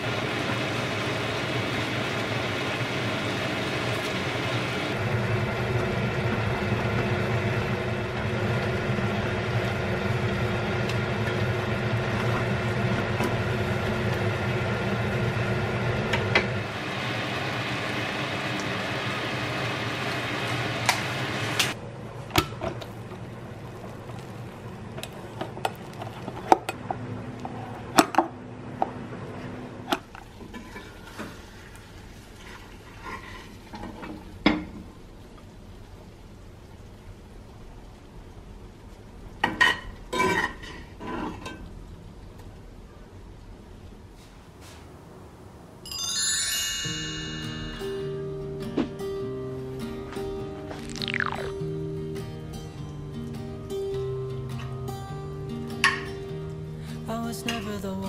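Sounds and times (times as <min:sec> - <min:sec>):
curry bubbling and sizzling in pan: 0:22.8 - 0:26.7, 0:30.2 - 0:42.4.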